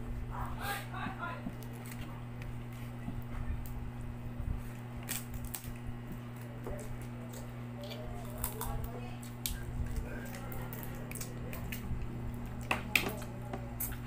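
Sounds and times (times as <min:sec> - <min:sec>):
steady low hum: 0:00.0 - 0:14.0
crab shell cracking: 0:05.0 - 0:14.0
wet mouth eating sounds: 0:13.7 - 0:14.0.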